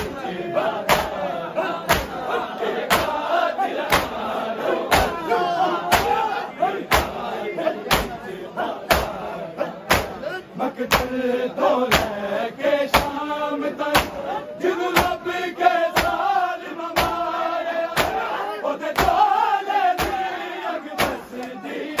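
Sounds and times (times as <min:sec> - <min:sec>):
men chanting: 0:00.0 - 0:22.0
hands striking chests: 0:00.9 - 0:01.2, 0:01.9 - 0:02.2, 0:03.9 - 0:04.2, 0:05.9 - 0:06.2, 0:07.9 - 0:08.2, 0:09.9 - 0:10.2, 0:13.9 - 0:14.2, 0:21.0 - 0:21.2.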